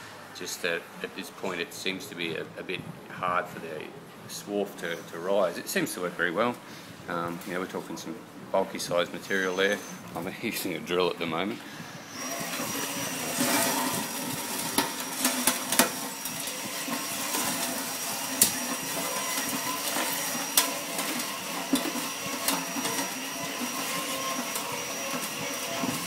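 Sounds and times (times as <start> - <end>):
hand drill motor running: 11.8 - 26.0
metal chips scraping on steel: 12.4 - 26.0.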